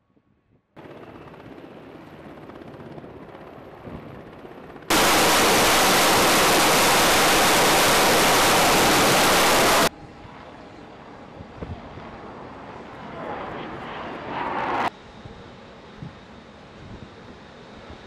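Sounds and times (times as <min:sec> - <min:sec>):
helicopter rotor and engine: 0:00.8 - 0:18.0
jet engines roaring: 0:04.9 - 0:09.9, 0:12.3 - 0:14.9.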